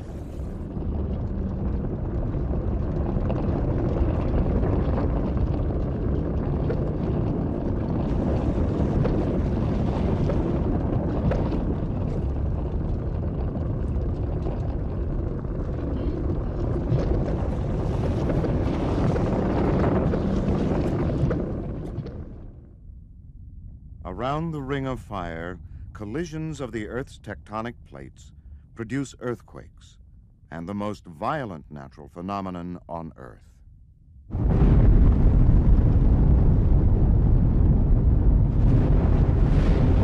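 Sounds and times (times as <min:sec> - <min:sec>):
faint crackles: 0:00.0 - 0:23.0, 0:34.3 - 0:40.0
lava lake rumbling: 0:00.0 - 0:32.2, 0:34.3 - 0:40.0.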